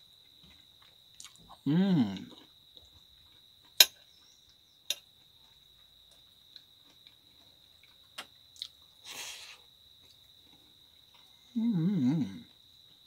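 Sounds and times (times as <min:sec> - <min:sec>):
insect high-pitched call: 0:03.8 - 0:05.0
fork scraping through food: 0:09.0 - 0:09.6.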